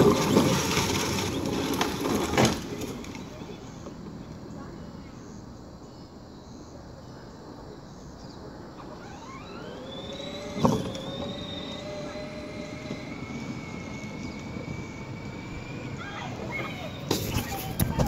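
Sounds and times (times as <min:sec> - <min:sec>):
riding lawn mower engine revving: 0:00.0 - 0:04.2, 0:08.8 - 0:18.0.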